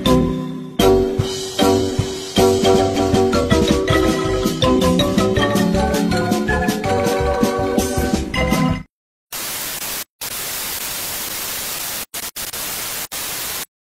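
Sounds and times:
music: 0:00.0 - 0:08.9
television static hiss: 0:09.3 - 0:13.7.

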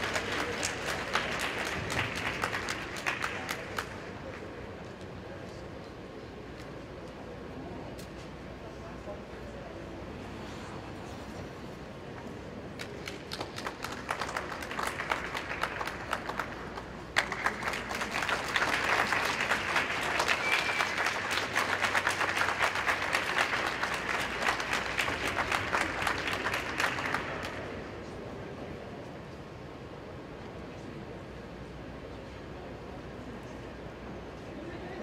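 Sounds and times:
audience applauding: 0:00.0 - 0:04.5, 0:12.8 - 0:27.8.

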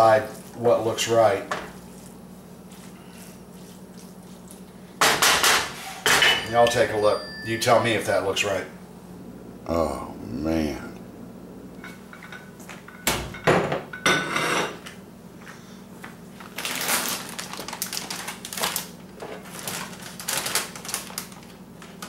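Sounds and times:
plastic chip bag crinkling: 0:16.4 - 0:22.0.

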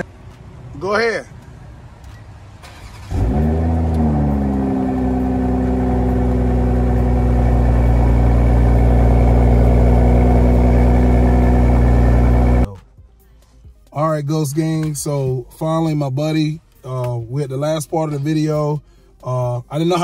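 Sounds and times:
car engine starting and idling: 0:02.0 - 0:13.5.

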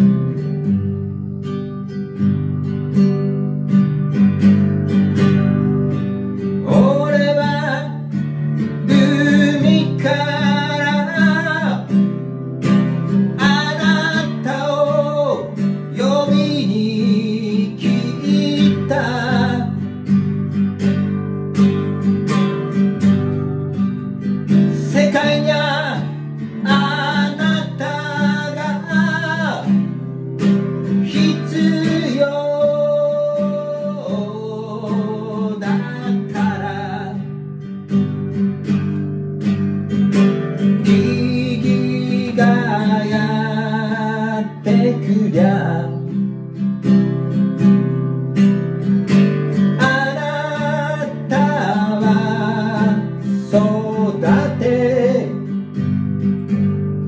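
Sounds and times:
strummed acoustic guitar: 0:00.0 - 0:57.0
man singing: 0:06.4 - 0:20.4, 0:24.5 - 0:37.4, 0:40.6 - 0:46.4, 0:49.1 - 0:55.8.

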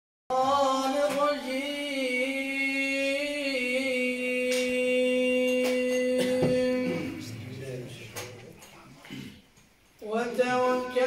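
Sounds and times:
man chanting into microphone: 0:10.0 - 0:11.0.

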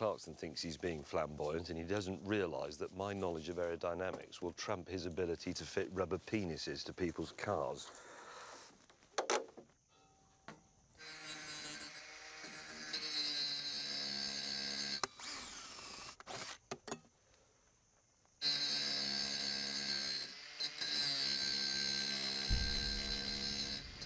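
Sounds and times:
angle grinder cutting metal: 0:11.0 - 0:15.8, 0:18.4 - 0:24.0
knocks: 0:22.5 - 0:24.0
low rumble of fire: 0:22.5 - 0:24.0.

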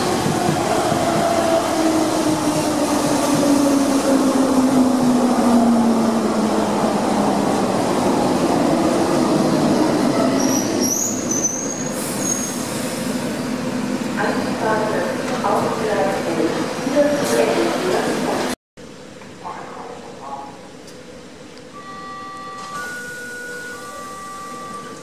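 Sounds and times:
high brake squeal: 0:10.2 - 0:13.5.

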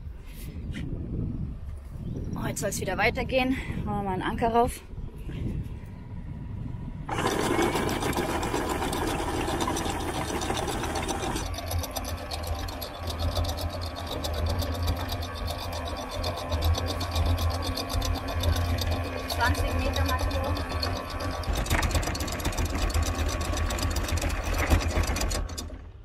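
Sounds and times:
windlass motor humming: 0:00.0 - 0:26.0.

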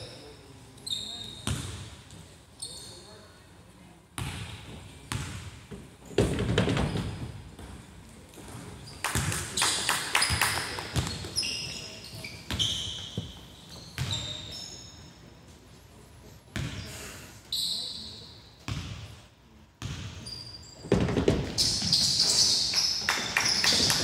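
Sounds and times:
sneaker squeaks: 0:00.0 - 0:01.9, 0:02.5 - 0:03.4, 0:06.0 - 0:07.7, 0:08.4 - 0:15.2, 0:16.6 - 0:18.9, 0:19.8 - 0:24.0
basketball bouncing on hardwood: 0:20.9 - 0:21.6.

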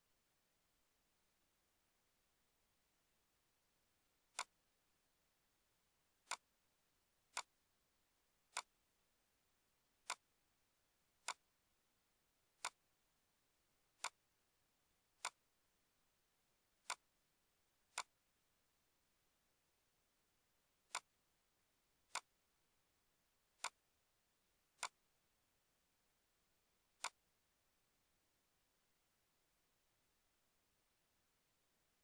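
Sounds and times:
computer mouse button clicking: 0:27.0 - 0:27.2.

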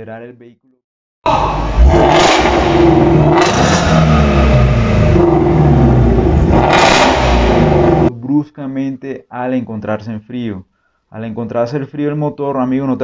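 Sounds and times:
engine revving: 0:01.3 - 0:08.1.

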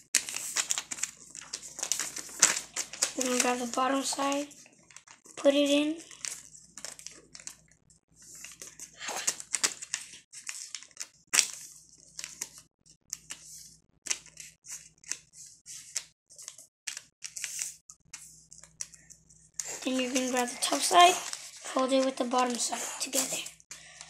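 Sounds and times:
paper rustling and folding: 0:00.0 - 0:24.0
sharp paper crease: 0:00.1 - 0:07.5, 0:19.6 - 0:23.5.

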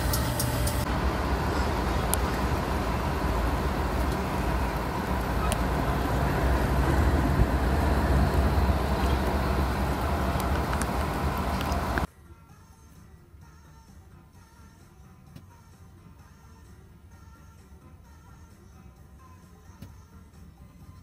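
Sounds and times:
locomotive engine rumble: 0:00.0 - 0:12.1
wheel-on-rail noise: 0:00.0 - 0:12.1.

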